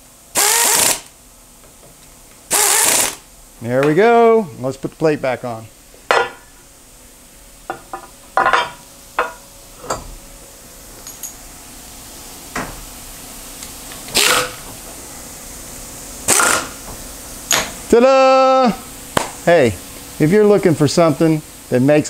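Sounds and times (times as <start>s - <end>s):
loud noisy burst: 0.3s - 1.1s, 2.5s - 3.2s.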